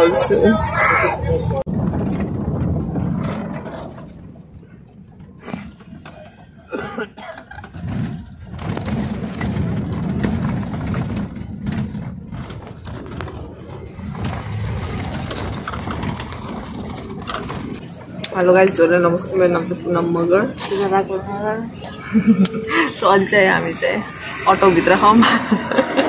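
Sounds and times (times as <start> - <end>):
faint voices: 0.0 - 1.7, 17.4 - 26.0
vehicle engine and road rumble: 0.0 - 26.0.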